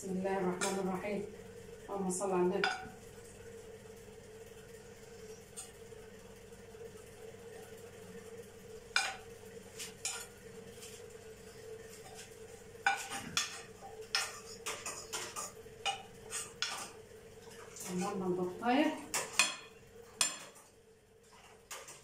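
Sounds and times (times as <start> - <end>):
faint hum: 0.0 - 22.0
knocks and scrapes on pot: 12.9 - 16.9.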